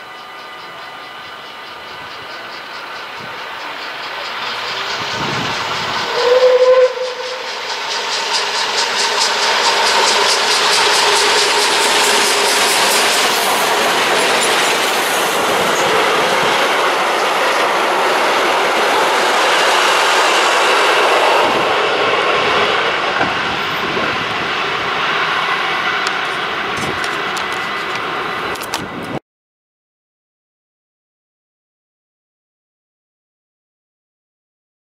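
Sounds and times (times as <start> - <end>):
steam train passing: 0.0 - 29.2
train wheels on rails: 0.0 - 29.2.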